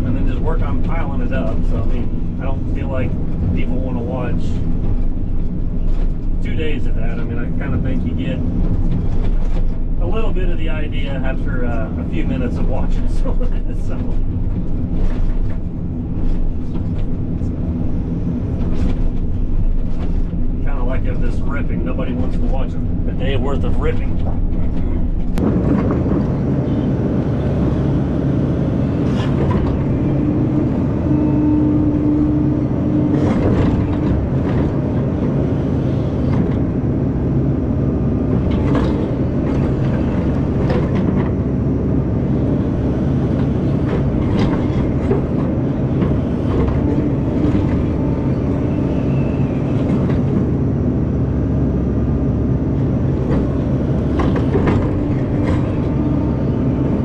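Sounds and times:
clanks and knocks from tracks: 0.0 - 36.9, 38.2 - 50.6, 52.8 - 57.0
bulldozer diesel engine running: 0.0 - 57.0.

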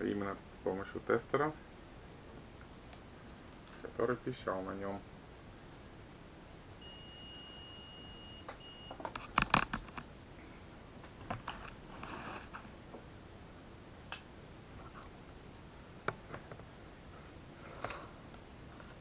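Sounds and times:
multimeter continuity beep: 6.8 - 9.0.

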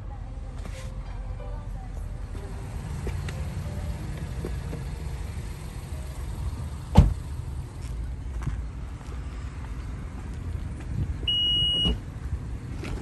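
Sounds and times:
sharp loud thump: 6.9 - 7.2.

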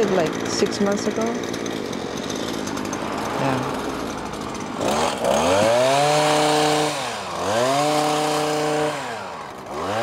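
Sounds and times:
power trimmer engine revving: 0.0 - 10.0.

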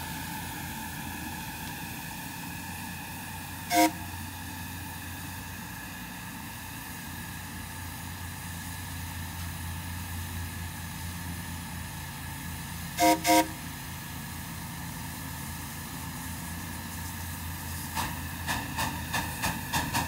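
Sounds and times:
locomotive low rumble: 0.0 - 20.0
steam locomotive whistle toots: 3.6 - 4.2, 13.0 - 13.7.

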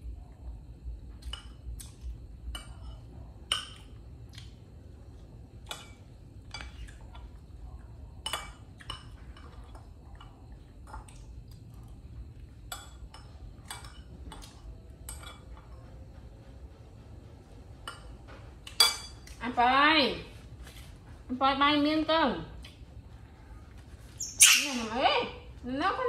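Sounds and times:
steady low hum: 0.0 - 26.0
spoon clinking against bowl: 18.7 - 19.3.

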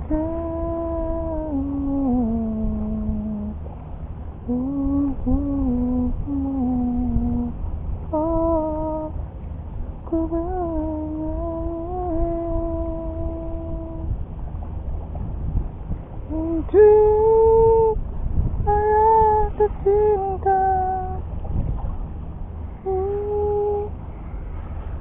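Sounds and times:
person humming a slow tune: 0.0 - 3.6, 4.4 - 9.2, 10.0 - 14.2, 16.2 - 18.0, 18.6 - 21.2, 22.7 - 24.0
low steady rumble: 0.0 - 25.0.

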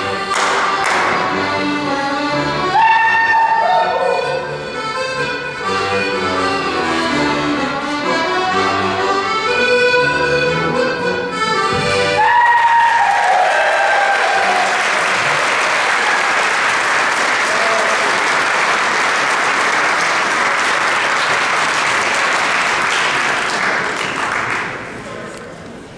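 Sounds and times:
audience applauding: 12.2 - 25.2.

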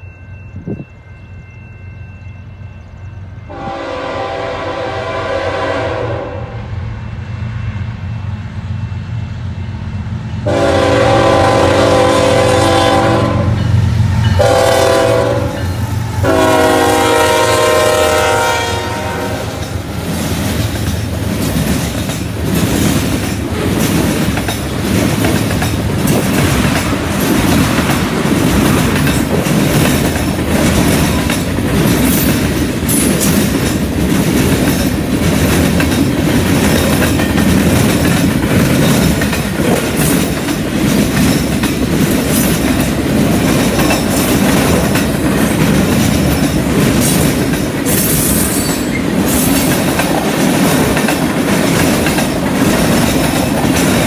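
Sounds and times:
diesel locomotive engine rumble: 0.0 - 54.0
train air horn: 3.5 - 6.8, 10.4 - 13.6, 14.4 - 19.9
train wheels clacking on rails: 10.4 - 54.0.

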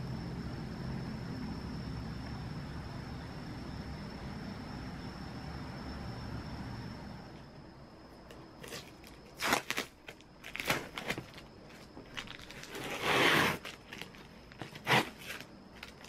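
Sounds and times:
packing tape crackling: 8.3 - 16.0
packing tape ripping: 8.6 - 11.5, 12.1 - 16.0.

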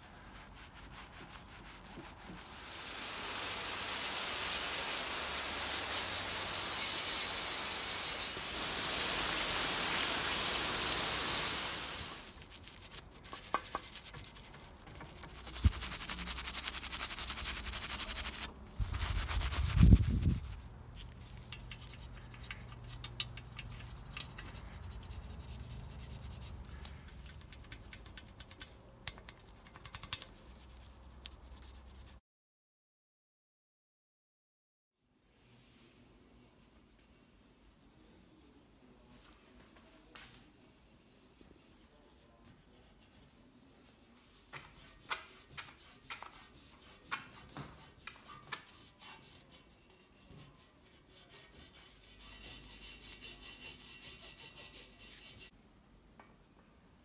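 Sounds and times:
scratchy brushing: 0.0 - 2.5, 5.6 - 32.2, 40.4 - 55.5
cloth rubbing bicycle frame: 0.0 - 2.7, 4.1 - 32.2, 35.0 - 55.5.

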